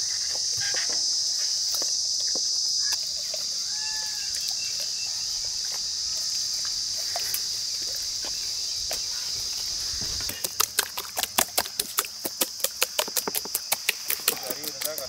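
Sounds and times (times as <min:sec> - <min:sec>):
high insect drone: 0:00.0 - 0:15.0
hands squelching and slapping paste: 0:09.9 - 0:15.0.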